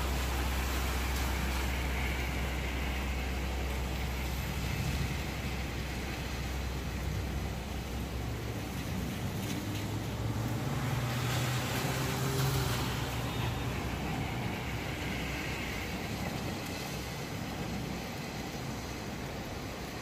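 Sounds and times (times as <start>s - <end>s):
vehicle passing: 8.1s - 17.1s.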